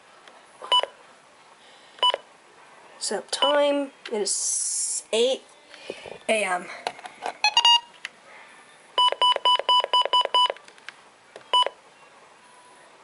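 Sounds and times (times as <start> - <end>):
short key-press beeps: 9.0 - 10.6, 11.5 - 11.8.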